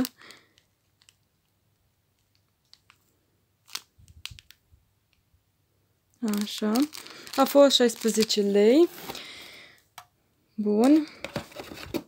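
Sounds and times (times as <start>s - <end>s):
plastic packet crinkling: 0.0s - 4.6s, 6.2s - 9.4s.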